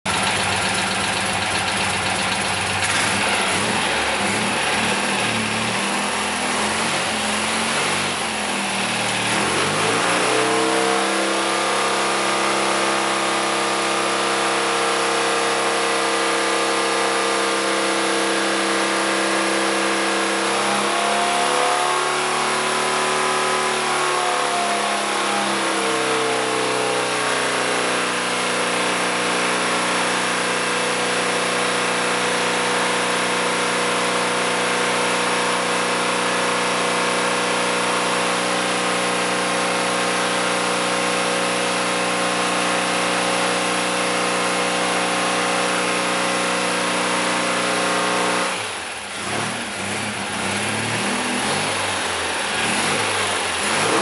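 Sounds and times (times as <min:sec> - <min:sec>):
air-cooled engine running: 0:00.1 - 0:54.0.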